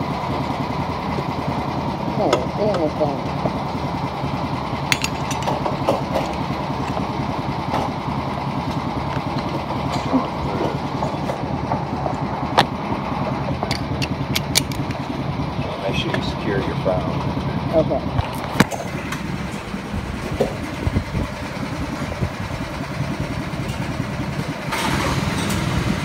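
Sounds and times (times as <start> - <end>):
go-kart engines droning: 0.0 - 26.0
sharp clicks and knocks: 13.6 - 15.0.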